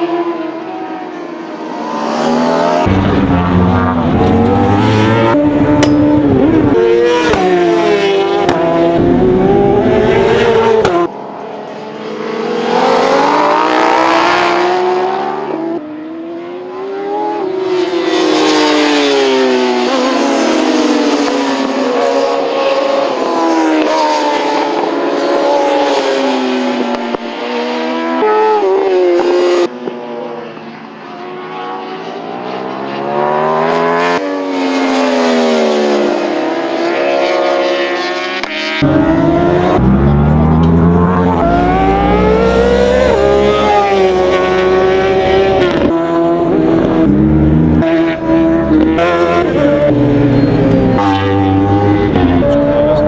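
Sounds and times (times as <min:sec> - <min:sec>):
racing motorcycles revving: 0:00.0 - 0:53.0.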